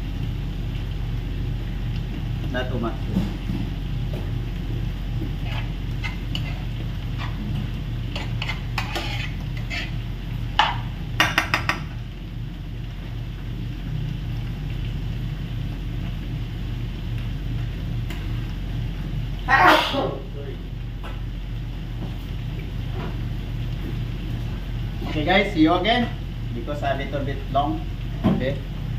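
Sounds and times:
low hum: 0:00.0 - 0:28.9
metal utensils scraping pans: 0:05.4 - 0:07.4, 0:08.1 - 0:10.0.

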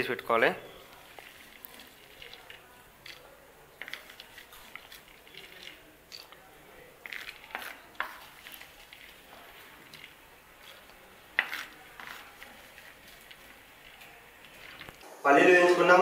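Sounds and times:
wooden spatula scraping clay pan: 0:07.0 - 0:15.0.

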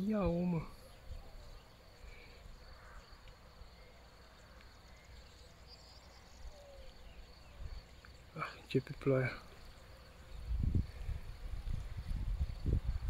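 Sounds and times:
distant bird calls: 0:00.0 - 0:13.0
wind rumble on microphone: 0:10.0 - 0:13.0.

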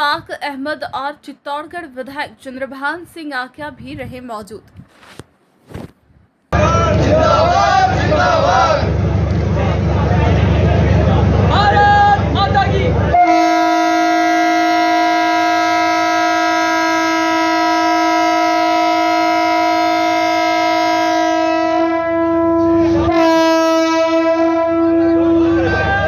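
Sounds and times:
train horn blast: 0:13.1 - 0:26.0.

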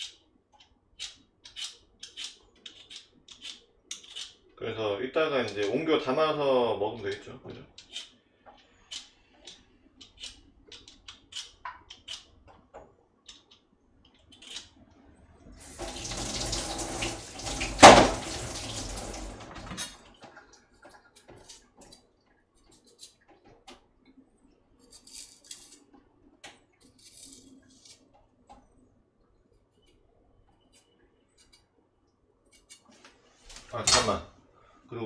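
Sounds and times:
faucet running into sink: 0:15.6 - 0:20.0.

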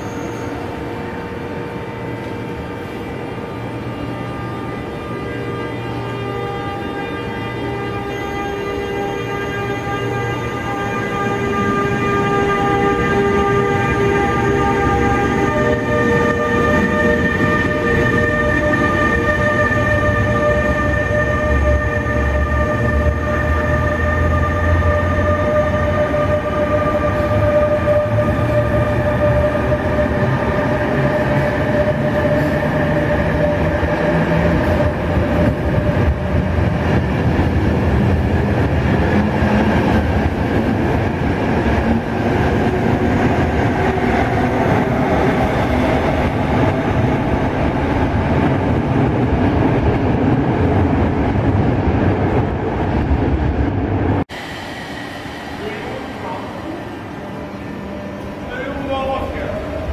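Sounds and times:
train rumbling past: 0:00.0 - 0:59.9
high whine: 0:54.3 - 0:59.6.

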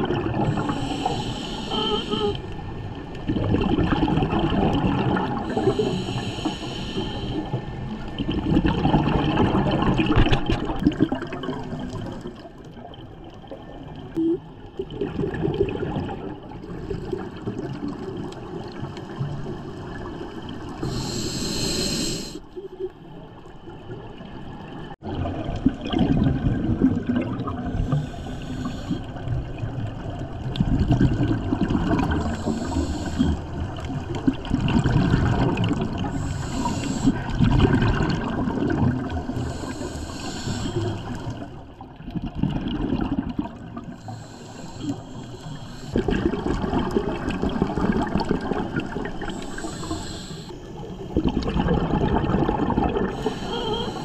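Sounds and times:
gurgling exhaled bubbles: 0:00.0 - 0:21.8, 0:23.8 - 0:54.0
regulator inhalation hiss: 0:00.5 - 0:02.4, 0:05.5 - 0:07.5, 0:20.8 - 0:22.4, 0:27.8 - 0:29.1, 0:32.2 - 0:33.4, 0:36.1 - 0:37.2, 0:39.4 - 0:41.2, 0:44.0 - 0:46.0, 0:49.3 - 0:50.8, 0:53.1 - 0:54.0.

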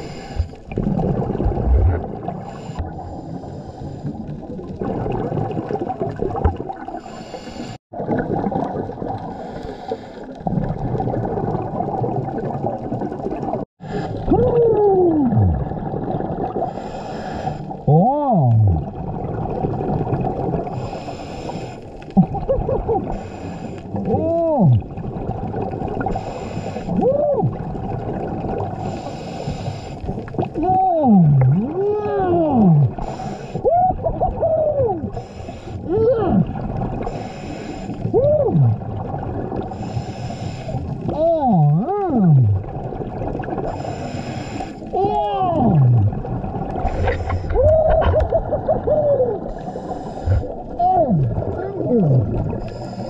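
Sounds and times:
bubbling rumble on exhale: 0:00.0 - 0:07.2, 0:07.9 - 0:21.2, 0:22.0 - 0:53.0
regulator hiss on inhale: 0:07.0 - 0:07.8, 0:09.4 - 0:10.3, 0:16.7 - 0:17.7, 0:20.9 - 0:21.9, 0:23.1 - 0:23.8, 0:26.2 - 0:26.9, 0:28.9 - 0:30.1, 0:33.0 - 0:33.6, 0:35.2 - 0:35.8, 0:37.1 - 0:38.0, 0:39.7 - 0:40.9, 0:43.8 - 0:44.8, 0:49.6 - 0:50.5, 0:52.6 - 0:53.0.

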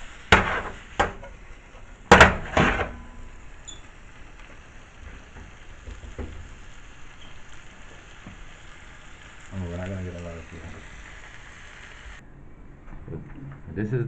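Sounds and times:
food sizzling in a pan: 0:00.0 - 0:12.2
frying pan clattering on stove: 0:00.3 - 0:01.4, 0:02.1 - 0:08.5.

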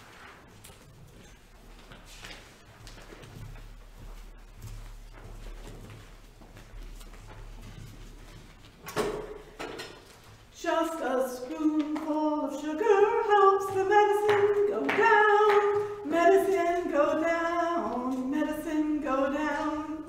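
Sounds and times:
woman singing unaccompanied: 0:10.5 - 0:20.0.

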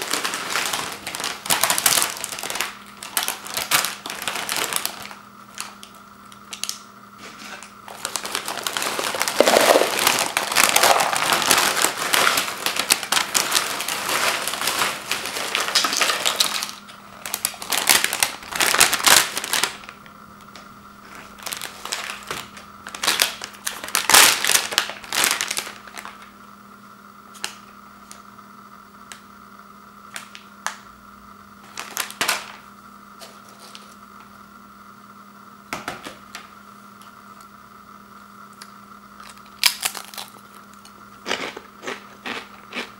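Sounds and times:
chips pouring into plastic bowl: 0:00.0 - 0:05.8, 0:07.9 - 0:20.0, 0:21.2 - 0:26.3
snack bag rustling: 0:00.0 - 0:26.3, 0:31.7 - 0:32.6, 0:39.2 - 0:42.9.

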